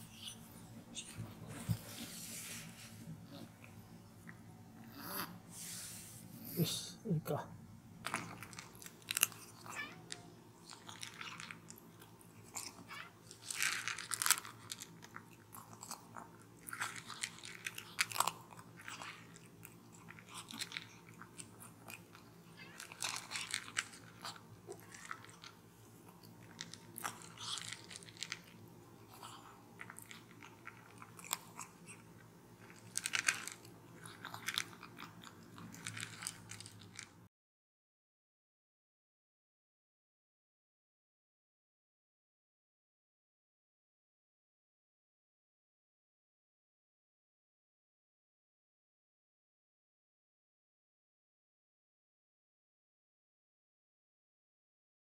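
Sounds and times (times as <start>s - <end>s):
kitten crunching dry kibble: 8.0s - 37.2s.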